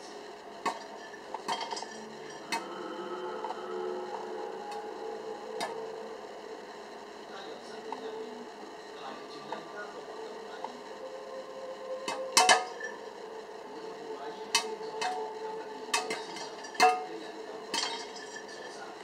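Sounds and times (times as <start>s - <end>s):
oven hum: 0.0s - 19.0s
popcorn popping: 15.9s - 18.7s.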